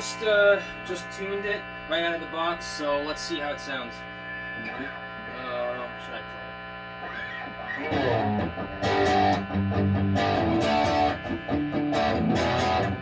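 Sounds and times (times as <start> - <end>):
electric guitar strummed chords: 7.0 - 13.0.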